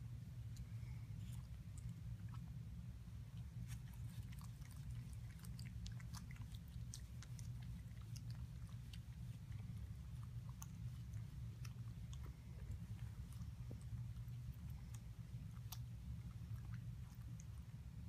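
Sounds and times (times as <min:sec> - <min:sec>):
steady low hum: 0:00.0 - 0:18.0
cat lapping water: 0:03.4 - 0:17.9.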